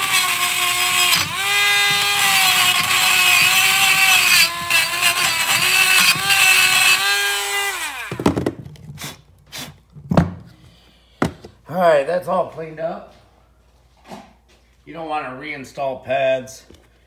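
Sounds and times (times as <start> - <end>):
wire wheel grinder brushing metal: 0.0 - 8.0
grinder motor winding down: 0.0 - 8.4.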